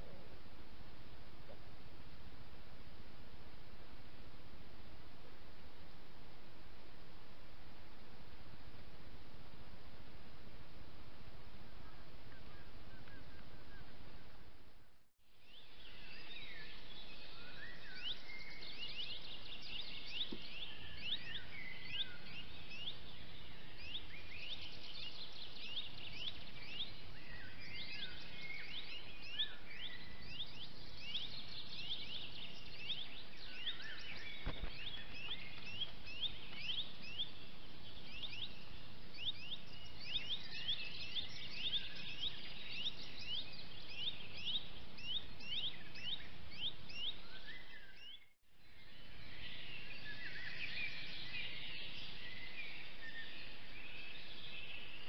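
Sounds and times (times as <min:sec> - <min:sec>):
birds chirping: 0:11.6 - 0:14.6, 0:15.4 - 0:55.0.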